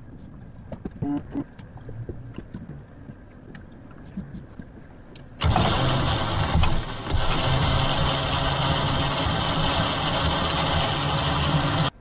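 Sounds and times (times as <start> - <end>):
boat engine idling: 5.4 - 12.0.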